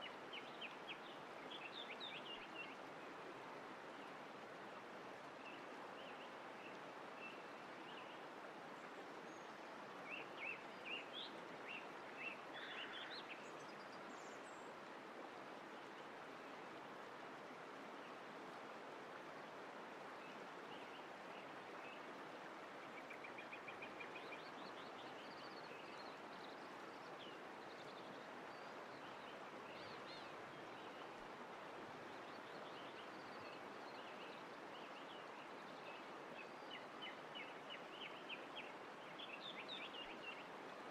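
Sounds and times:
flowing water: 0.0 - 40.9.

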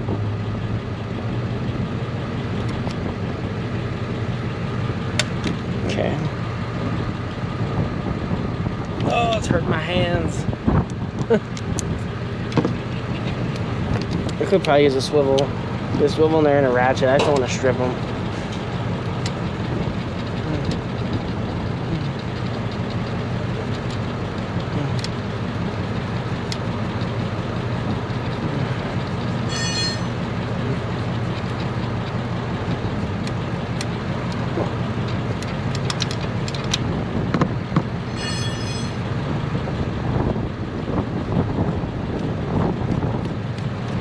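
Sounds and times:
high-pitched chirping bursts: 29.5 - 30.2, 38.1 - 39.0.

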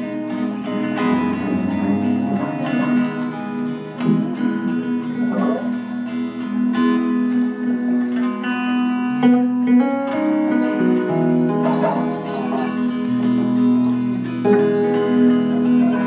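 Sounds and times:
picked electric guitar notes: 0.0 - 16.0
held low note: 0.9 - 6.1.

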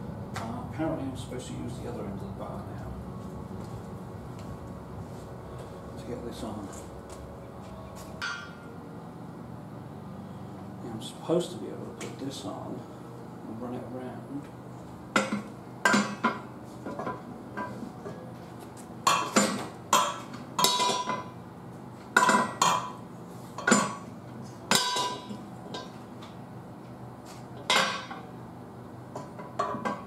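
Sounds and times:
metal bar clanking on wheel rim: 19.1 - 21.3, 24.7 - 26.0.

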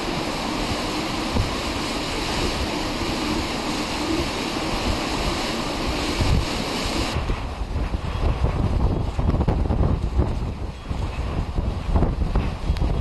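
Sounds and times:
gusty wind rushing: 0.0 - 13.0
wind buffeting microphone: 0.0 - 13.0.

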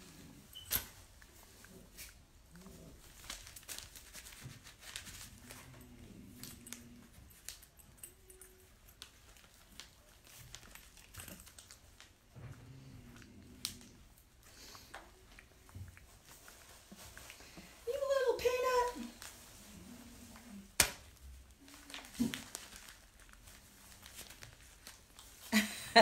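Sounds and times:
small objects clicking and rustling: 0.2 - 12.5, 20.8 - 25.5.

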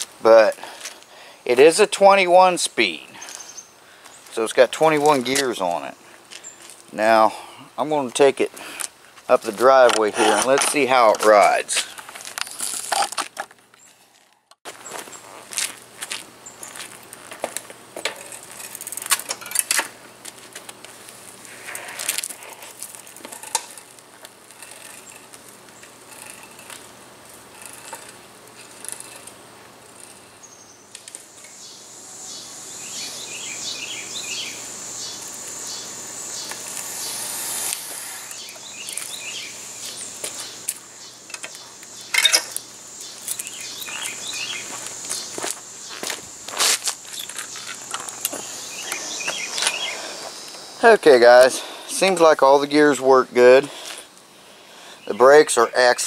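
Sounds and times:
birds chirping: 0.3 - 8.8, 29.9 - 56.0
footsteps: 8.4 - 26.9, 43.2 - 50.6
bicycle clicks and knocks: 16.7 - 21.0
insect drone: 20.9 - 55.8.

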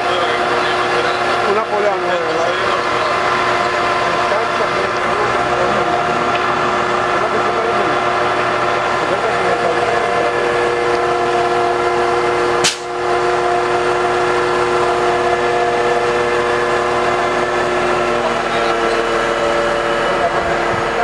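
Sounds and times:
machine hum: 0.0 - 21.0
sharp click: 12.6 - 12.9.

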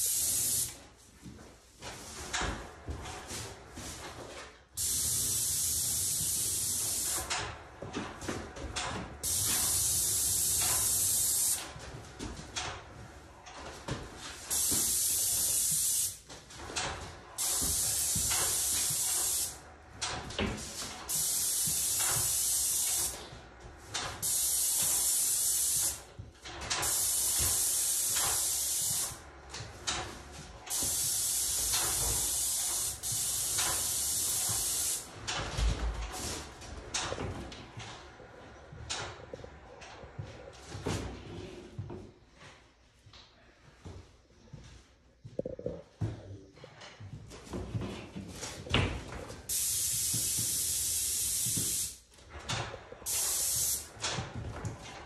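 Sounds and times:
paint spray gun hissing: 0.0 - 0.7, 4.8 - 7.3, 9.2 - 11.6, 14.5 - 16.2, 17.4 - 19.6, 21.1 - 23.2, 24.2 - 26.0, 26.8 - 29.2, 30.7 - 35.0, 49.5 - 52.0, 53.1 - 53.8.

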